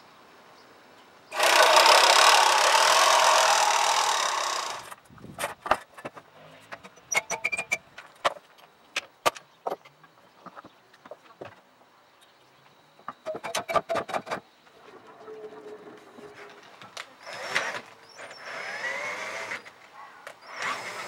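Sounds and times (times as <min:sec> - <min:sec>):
mower reel spinning whir: 0:01.3 - 0:05.0, 0:14.7 - 0:19.8, 0:20.4 - 0:21.0.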